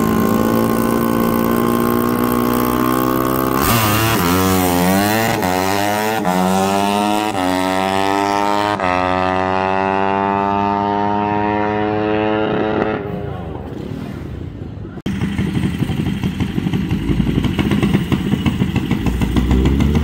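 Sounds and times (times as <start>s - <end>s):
dirt bike engine accelerating: 0.0s - 13.8s, 15.1s - 20.0s.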